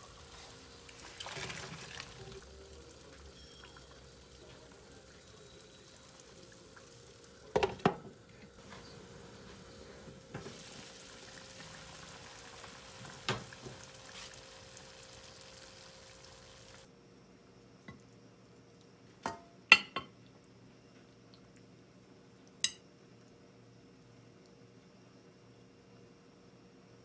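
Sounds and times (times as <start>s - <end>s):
pan simmering with bubbling hiss: 0.0s - 16.9s.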